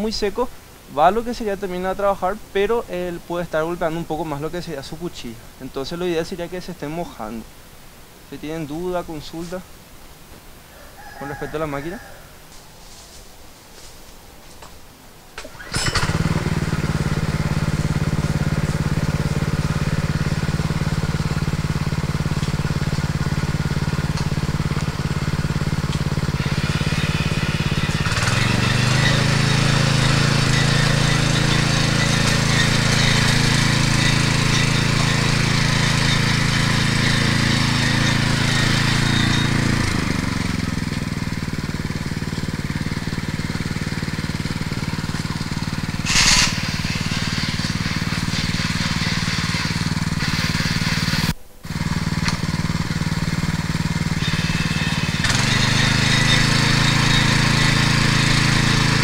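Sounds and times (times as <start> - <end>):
tines churning ground: 10.7 - 59.0
tiller engine running: 15.4 - 59.0.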